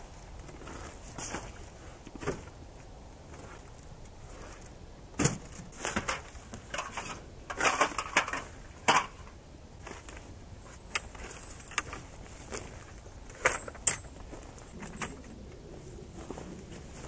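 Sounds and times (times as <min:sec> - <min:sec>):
camp gear clattering: 0:05.2 - 0:09.4, 0:10.9 - 0:15.4.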